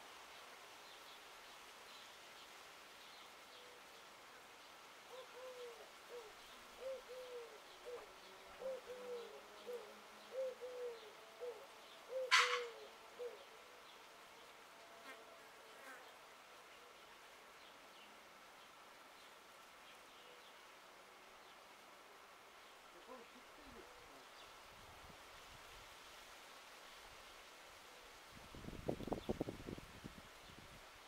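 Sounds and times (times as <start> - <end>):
dove cooing: 5.1 - 13.4, 23.0 - 24.2.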